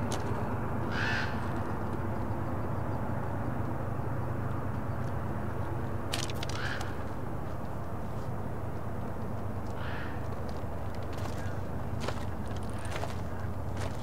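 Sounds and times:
bird calling: 9.7 - 10.4, 11.2 - 14.0.

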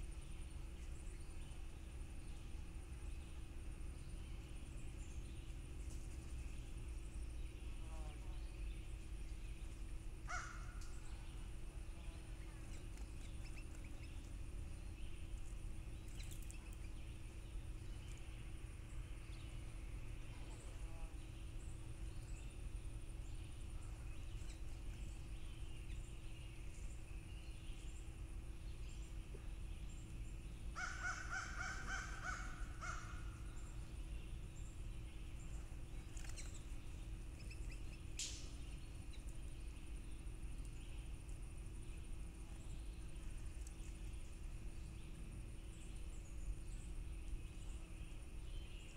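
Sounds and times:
small birds chirping: 0.0 - 48.9
steady low hum: 0.0 - 48.9
crow cawing: 10.3 - 10.8, 30.8 - 33.2.

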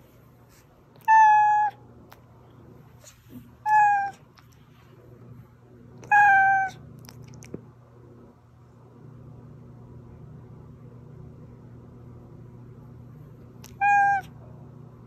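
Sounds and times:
cat meowing: 1.0 - 1.8, 3.6 - 4.2, 6.0 - 6.8, 13.6 - 14.4.

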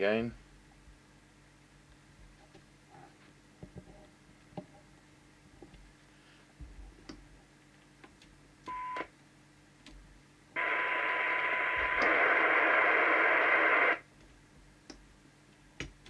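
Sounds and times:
radio receiver hiss: 10.6 - 14.0
steady radio test tone: 10.6 - 14.0.

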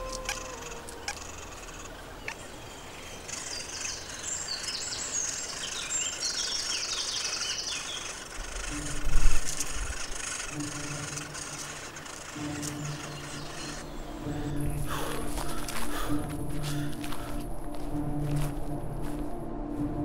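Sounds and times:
nestlings chirping: 0.0 - 15.7.

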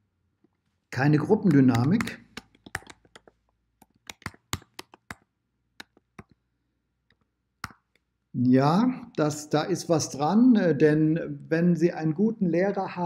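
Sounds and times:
typing on keyboard: 1.4 - 6.3.

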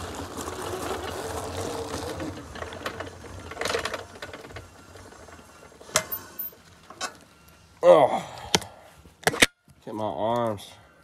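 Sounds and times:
tyres rolling on gravel: 0.0 - 8.1.

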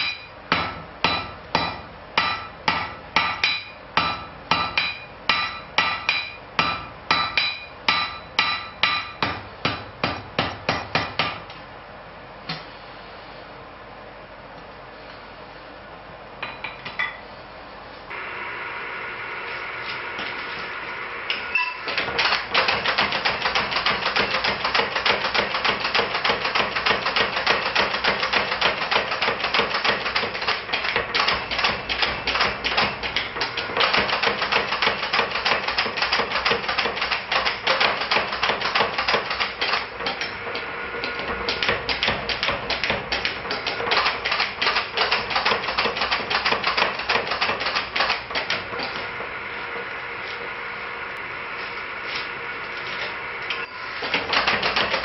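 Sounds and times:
power hammer pounding metal: 0.0 - 11.4.

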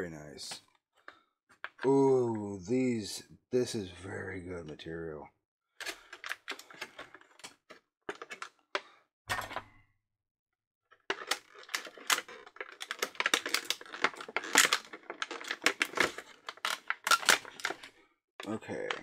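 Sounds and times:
plastic packaging crinkling: 11.1 - 17.9.

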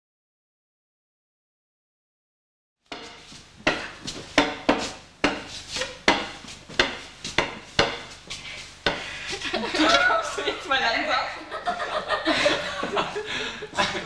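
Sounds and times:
sharp woody knocks: 2.9 - 5.5, 6.1 - 8.1.

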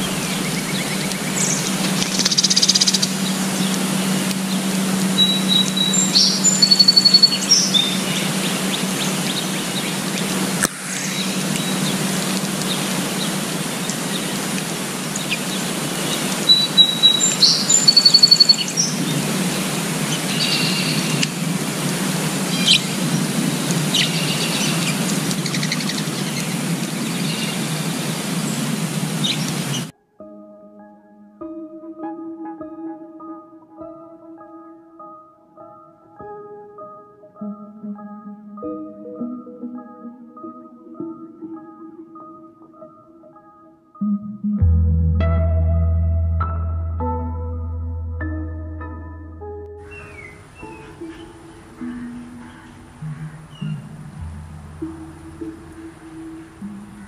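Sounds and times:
songbirds chirping and trilling: 0.0 - 29.9, 49.8 - 57.0
low outdoor rumble: 53.6 - 56.0.

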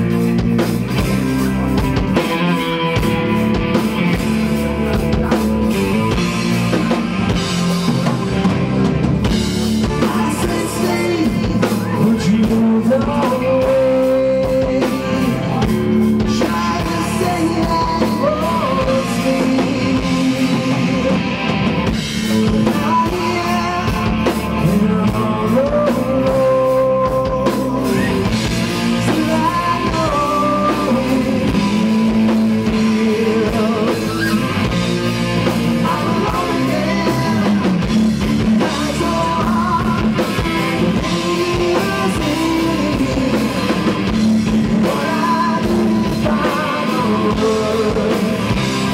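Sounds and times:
distorted electric guitar: 0.0 - 48.9
drum kit: 0.0 - 48.9
electric bass: 0.0 - 48.9
male lead vocal: 9.3 - 48.9.

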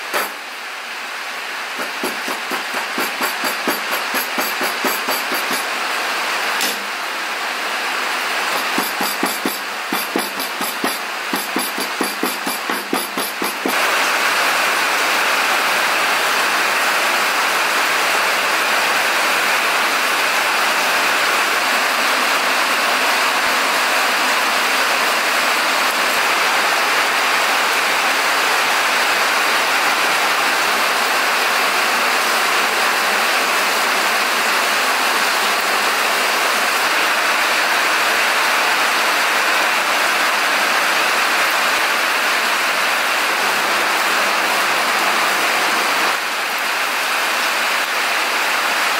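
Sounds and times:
steady rain: 0.0 - 48.9.

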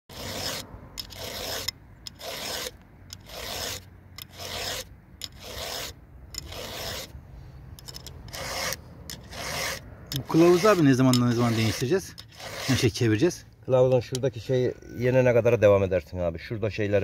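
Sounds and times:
file rasping on chainsaw chain: 0.1 - 7.2, 7.8 - 13.4.

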